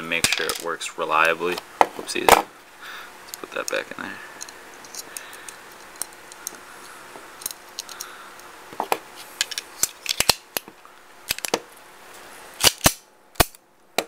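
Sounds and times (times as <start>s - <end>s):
pistol parts clicking and scraping: 4.4s - 8.5s, 9.4s - 10.7s, 11.3s - 11.6s.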